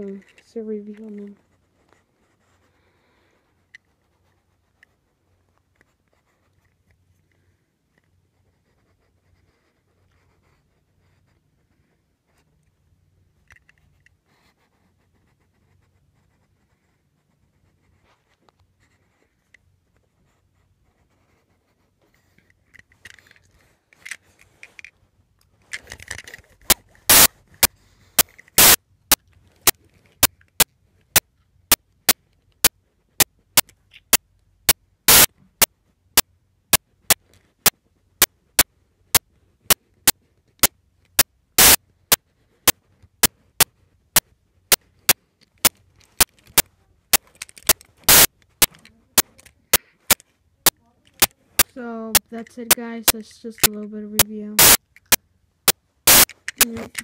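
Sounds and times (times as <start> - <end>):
faint handling rustles: 18.0 - 28.6
sharp clicks: 25.7 - 31.8, 35.1 - 35.3, 40.0 - 43.3, 44.2 - 55.2, 56.0 - 57.0.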